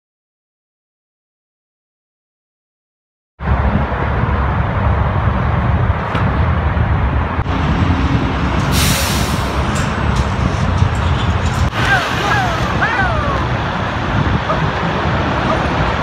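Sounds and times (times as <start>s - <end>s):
highway traffic rumble: 3.4s - 16.0s
sharp air hiss: 8.6s - 9.8s.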